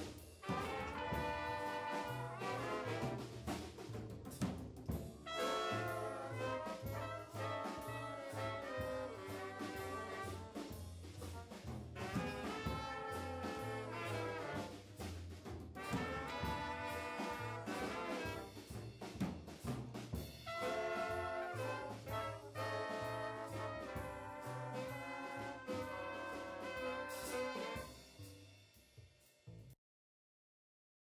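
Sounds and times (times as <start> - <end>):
big band playing jazz: 0.0 - 28.9.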